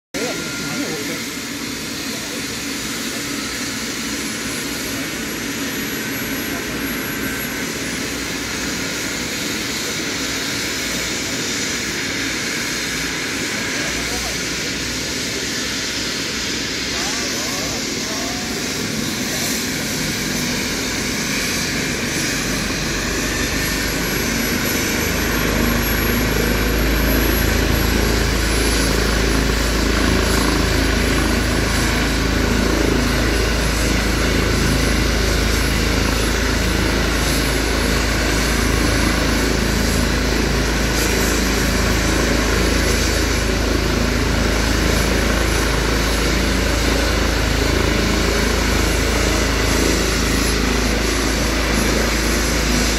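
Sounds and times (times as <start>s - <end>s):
helicopter turbine whine and rotor: 0.1s - 52.9s.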